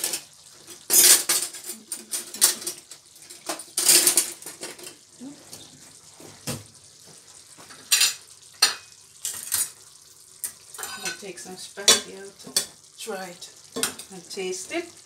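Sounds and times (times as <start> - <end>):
crockery and utensils clattering: 0.0 - 4.9.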